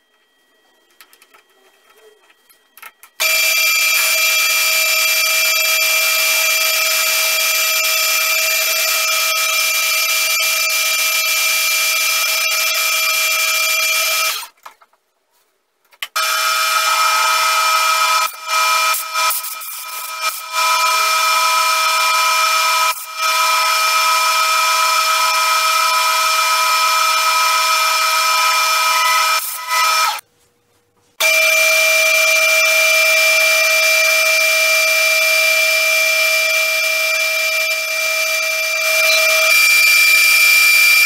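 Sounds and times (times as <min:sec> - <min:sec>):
metal lathe whining: 0:16.2 - 0:30.2, 0:31.2 - 0:41.0.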